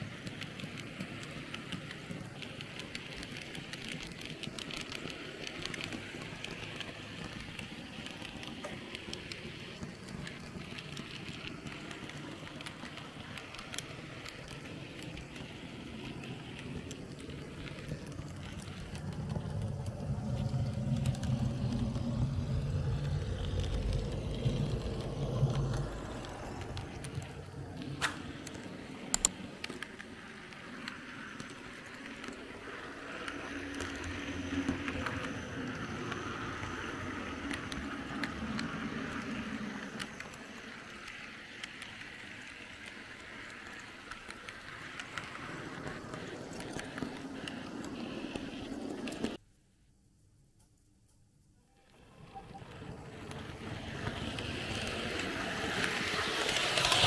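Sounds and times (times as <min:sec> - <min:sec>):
model train rolling on track: 0:00.0 - 0:49.4, 0:51.7 - 0:57.0
sharp clicks: 0:24.1 - 0:30.1.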